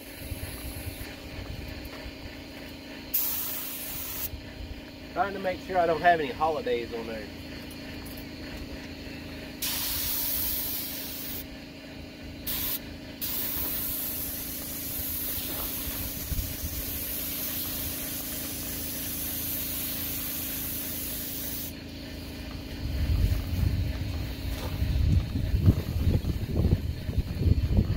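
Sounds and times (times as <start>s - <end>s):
paint spray gun hissing: 0.0s - 1.2s, 3.1s - 4.3s, 9.5s - 22.6s
steady low hum: 0.0s - 27.9s.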